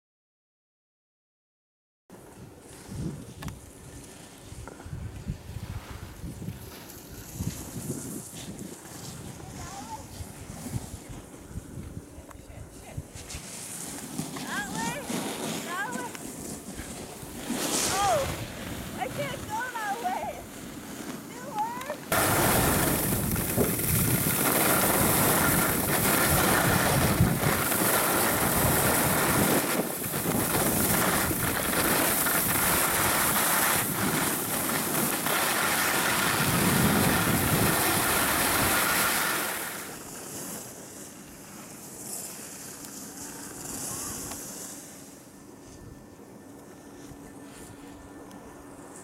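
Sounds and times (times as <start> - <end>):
skis scraping snow: 2.2 - 12.1, 12.8 - 45.8
wind rushing over microphone: 2.4 - 13.5, 14.4 - 20.5, 21.4 - 39.9.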